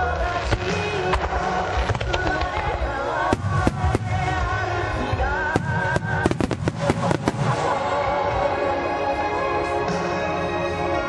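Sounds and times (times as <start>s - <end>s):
music playing: 0.0s - 11.0s
firework shells bursting: 5.6s - 7.8s.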